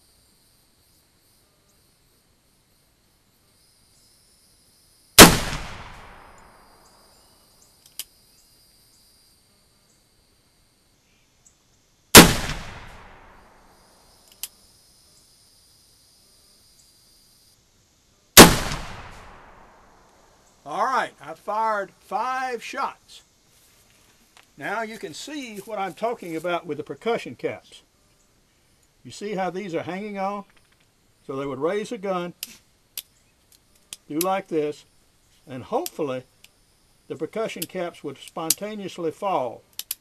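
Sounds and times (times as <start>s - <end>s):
revolver shots echoing: 5.2s - 6.4s, 12.2s - 13.4s, 18.4s - 19.8s.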